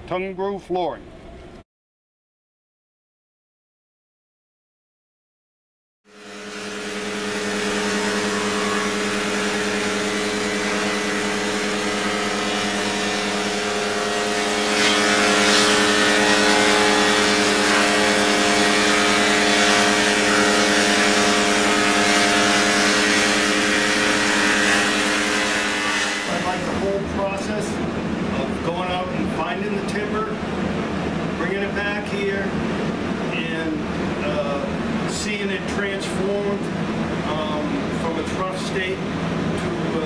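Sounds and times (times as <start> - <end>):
planer machine humming: 6.1 - 30.7
harsh rasp of board planing: 6.2 - 26.9.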